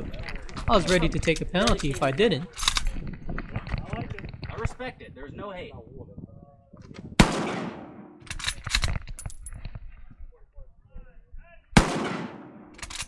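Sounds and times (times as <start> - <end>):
rifle shots with echo: 7.2 - 8.8, 11.8 - 13.0
metallic bolt clicks: 12.8 - 13.0.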